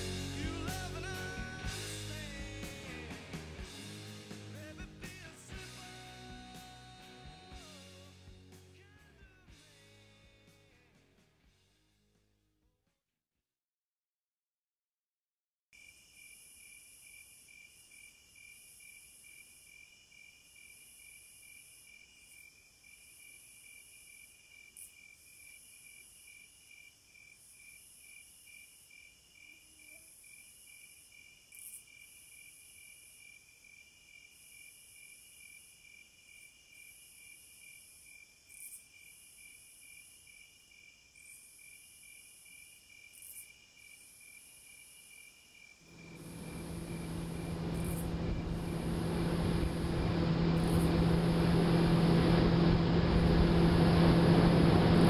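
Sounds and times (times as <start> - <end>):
high insect buzz: 15.8 - 54.8
insects chirping: 15.8 - 54.9.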